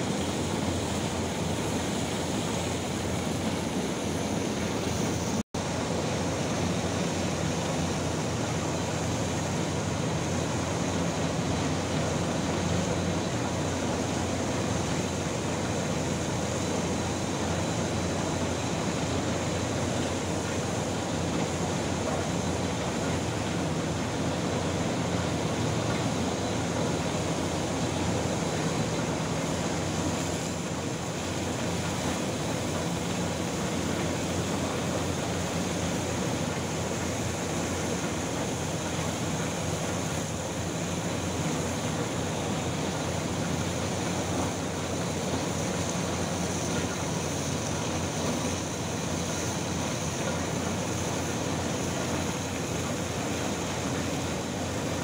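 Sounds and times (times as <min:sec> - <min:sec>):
machinery hum: 0:00.0 - 0:55.0.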